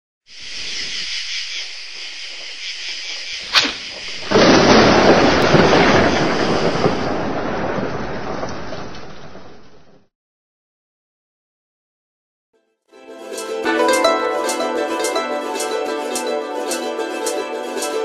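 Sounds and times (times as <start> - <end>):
thunder crack and rumble: 3.8 - 10.1.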